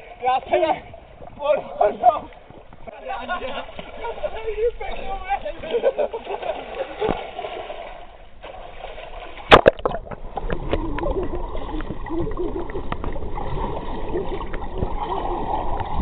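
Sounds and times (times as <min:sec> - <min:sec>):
swimmer splashing: 0:03.1 - 0:16.0
loud splash: 0:06.2 - 0:16.0
underwater bubbling: 0:06.6 - 0:16.0
small underwater clicks: 0:12.6 - 0:13.3.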